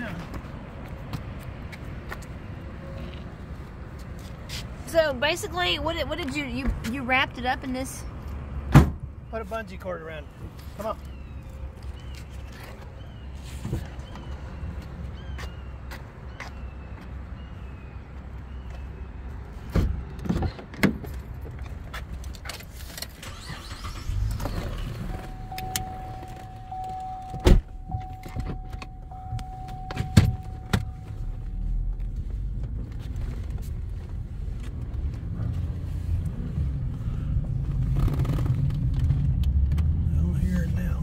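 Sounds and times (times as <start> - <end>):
car engine idling: 23.2 - 32.4
steady warning tone: 24.3 - 31.8.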